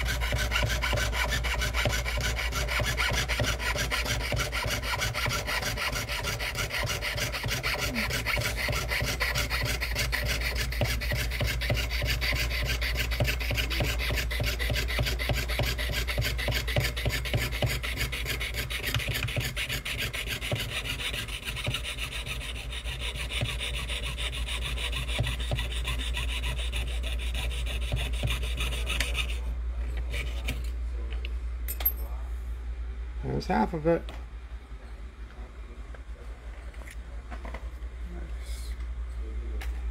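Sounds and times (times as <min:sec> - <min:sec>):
saw blade cutting metal sheet: 0:00.0 - 0:29.4.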